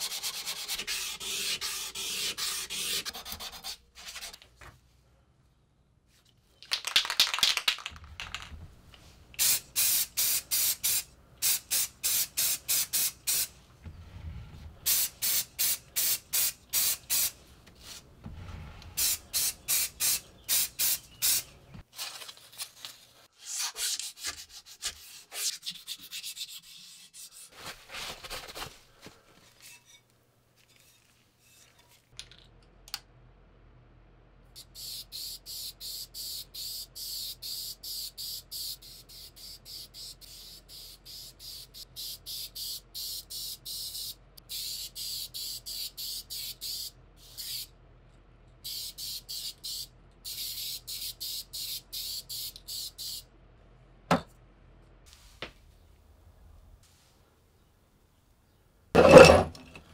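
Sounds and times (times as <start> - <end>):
spray paint can hissing: 9.4 - 13.5, 14.9 - 17.4, 19.0 - 21.5, 34.8 - 47.7, 48.6 - 53.2.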